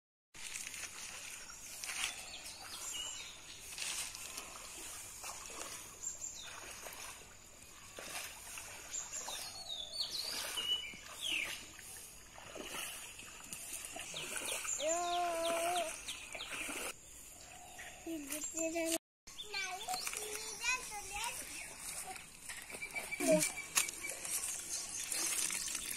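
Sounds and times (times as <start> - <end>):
water splashing and sloshing: 0.4 - 25.9
small birds chirping: 1.4 - 25.9.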